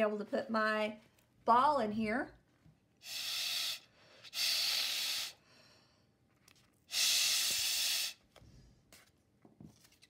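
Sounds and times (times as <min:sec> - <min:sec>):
breath blown through a straw: 0:03.0 - 0:05.5, 0:06.9 - 0:08.3.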